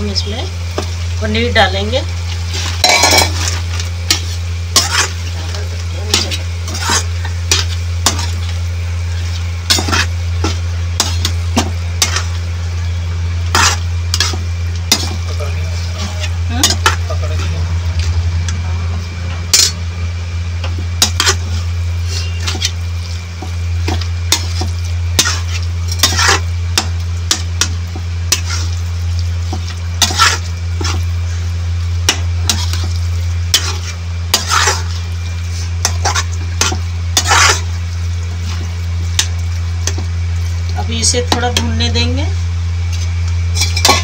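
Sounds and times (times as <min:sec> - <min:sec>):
frying sizzle: 0:00.0 - 0:44.0
steady low hum: 0:00.0 - 0:44.0
spatula scraping a pan: 0:02.4 - 0:12.4, 0:13.4 - 0:17.6, 0:21.0 - 0:28.8, 0:29.4 - 0:37.8.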